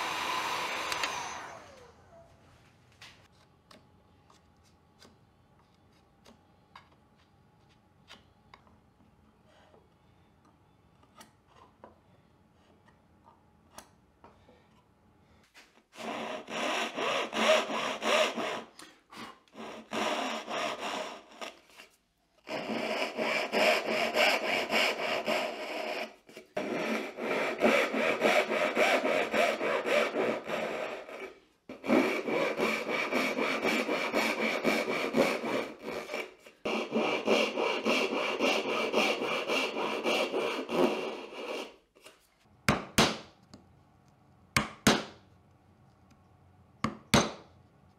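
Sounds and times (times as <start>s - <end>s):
handsaw rasping through wood: 16.0s - 21.8s, 22.4s - 41.8s.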